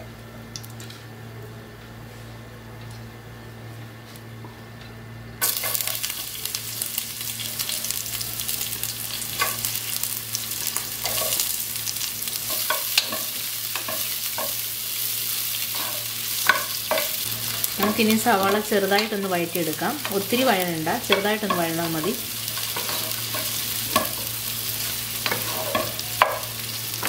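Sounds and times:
onions sizzling in hot oil: 5.4 - 27.0
spatula knocking and scraping pot: 25.2 - 26.6.

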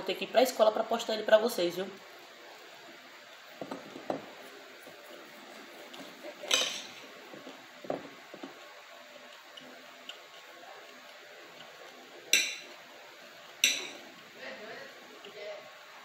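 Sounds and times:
cutlery scraping on glass plate: 6.4 - 7.0.

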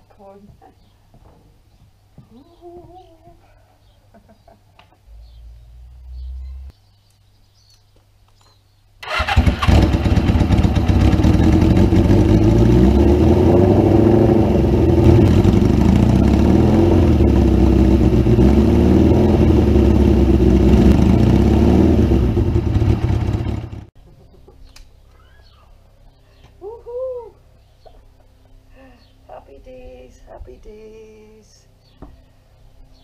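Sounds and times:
motorcycle engine running: 9.1 - 23.9.

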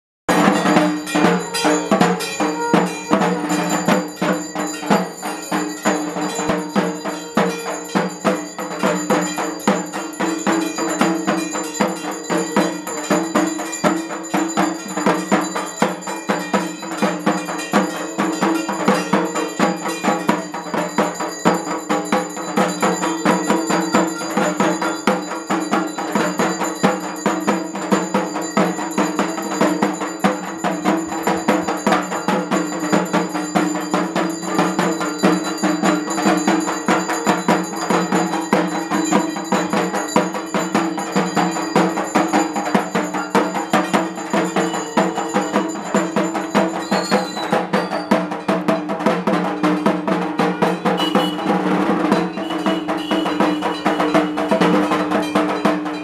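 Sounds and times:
drums beating: 0.3 - 56.0
metal bells clanging: 0.3 - 56.0.

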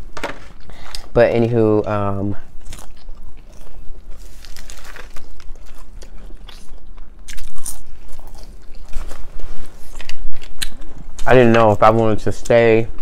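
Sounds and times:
crunching of crispy food: 2.5 - 11.4.

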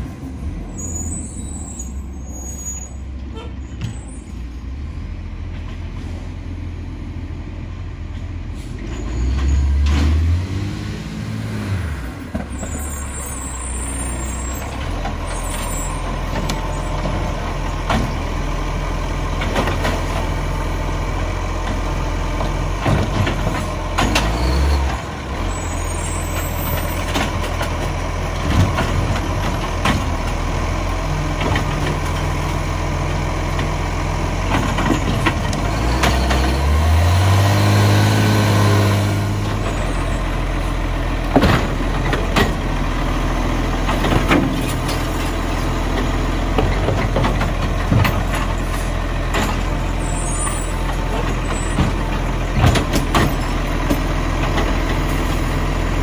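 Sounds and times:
garbage truck diesel engine: 0.0 - 56.0
air brakes hissing: 8.5 - 9.3.

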